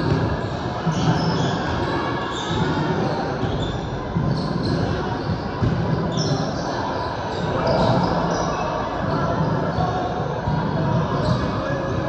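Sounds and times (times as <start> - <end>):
crowd din in gym: 0.0 - 12.0
sneakers squeaking: 0.0 - 12.0
basketball bouncing: 2.6 - 6.4.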